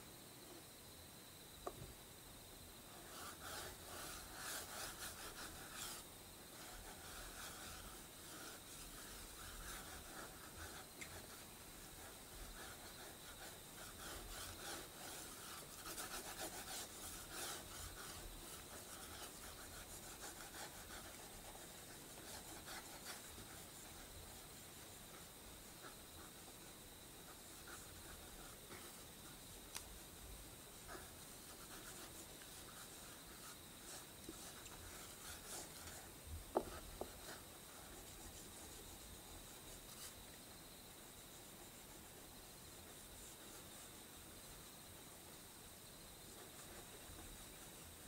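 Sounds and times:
drawing stick scribbling on paper: 2.9 - 29.8, 30.7 - 40.2, 41.1 - 44.2.

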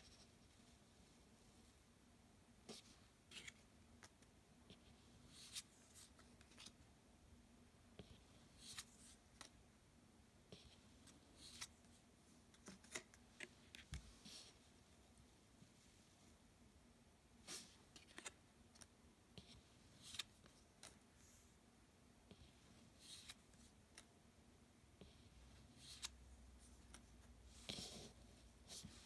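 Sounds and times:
cards swishing and tapping: 12.6 - 14.0.

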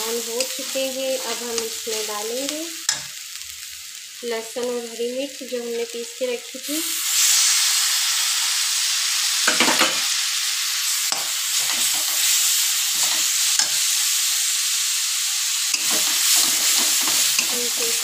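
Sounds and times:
spatula scraping pan: 0.0 - 2.1, 15.7 - 18.0
paste sizzling in hot oil: 0.0 - 18.0.

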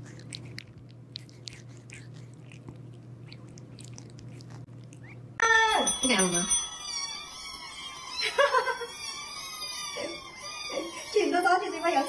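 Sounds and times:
kitten sucking on paw: 0.0 - 5.4.

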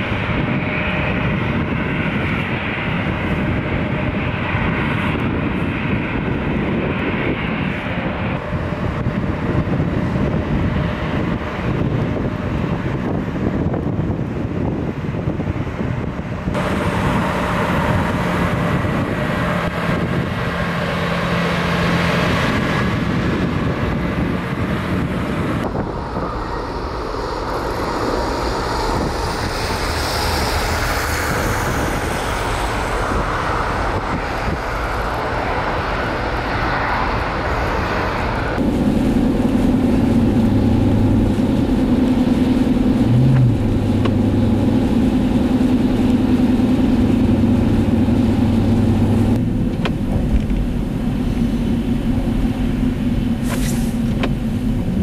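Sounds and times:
aircraft on airport apron: 0.0 - 55.0
car engine and road drone: 0.0 - 55.0
motor grader diesel engine: 15.6 - 55.0.

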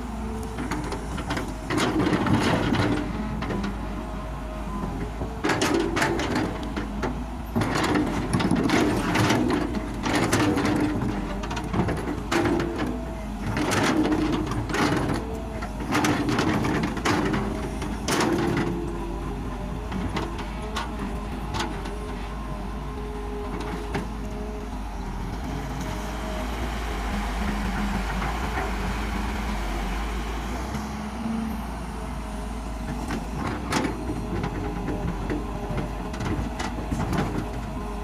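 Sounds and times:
diesel engine and hydraulics: 0.0 - 38.0
excavator bucket scraping stones: 5.4 - 19.1.

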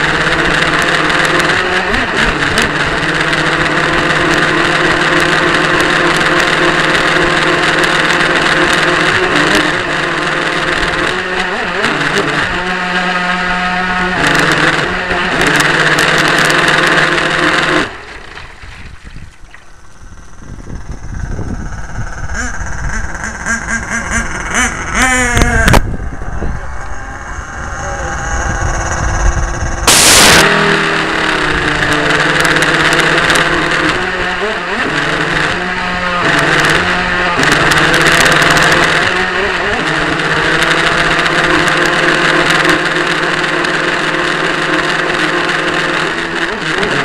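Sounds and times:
boat motor running: 0.0 - 47.0
short rising whine: 0.0 - 47.0
wind noise: 18.2 - 32.6.

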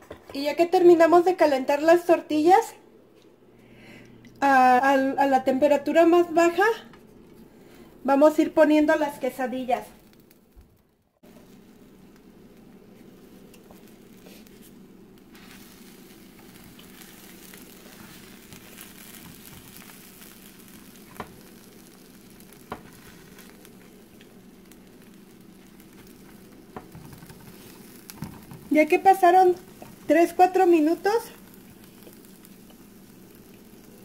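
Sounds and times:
quesadillas sizzling in frying pan: 7.5 - 34.0.

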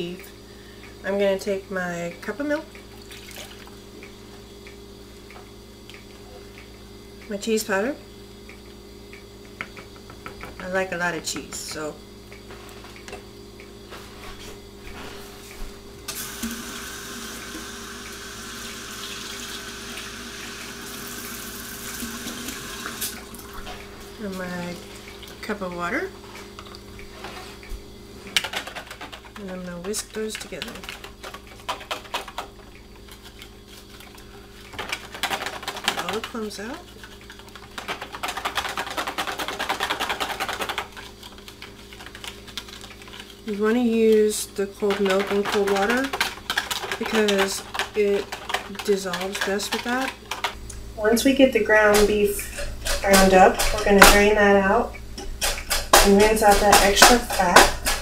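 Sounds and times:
tap water running into a cup: 16.1 - 23.9
whisk clattering in plastic bowl: 34.7 - 43.2, 44.2 - 50.6, 51.8 - 54.3, 55.4 - 58.0.

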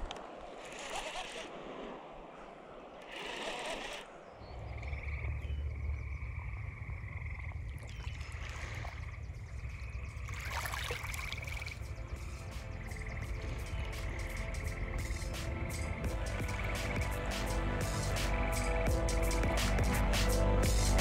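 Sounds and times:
frogs trilling: 3.0 - 16.1
low rumble: 4.4 - 10.3.

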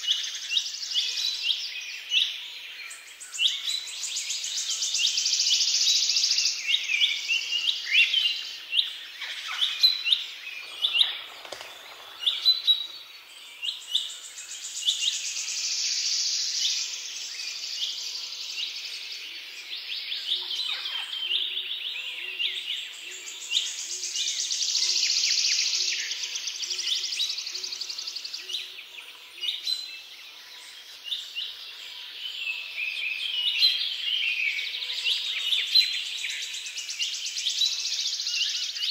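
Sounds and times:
small birds chirping: 3.0 - 21.5.

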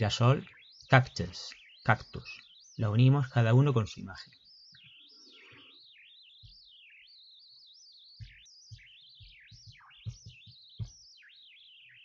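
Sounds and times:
songbird warbling: 0.0 - 12.0
soft low knocks: 8.2 - 11.1.

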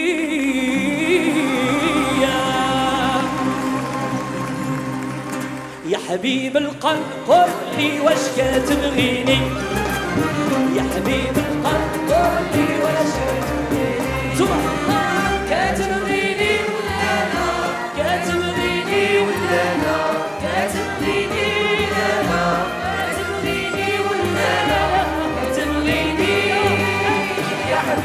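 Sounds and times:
chorus of voices singing: 0.0 - 5.0, 7.3 - 28.0
ouds and violins playing: 0.9 - 6.0, 8.0 - 28.0.

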